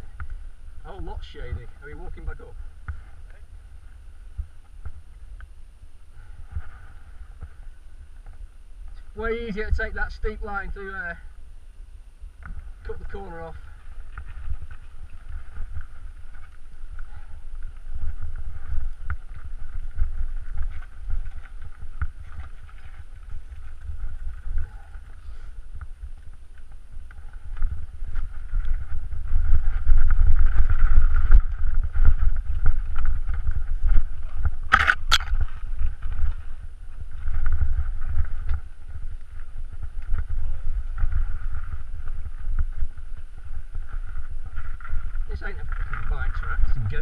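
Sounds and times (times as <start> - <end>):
wind buffeting the microphone: 0.0 - 47.0
bike rattling over stones: 12.4 - 47.0.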